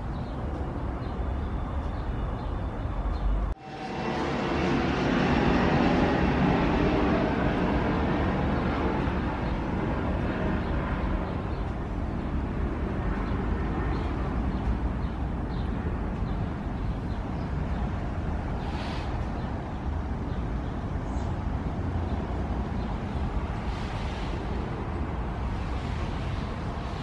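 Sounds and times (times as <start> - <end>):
low outdoor rumble: 2.6 - 27.0.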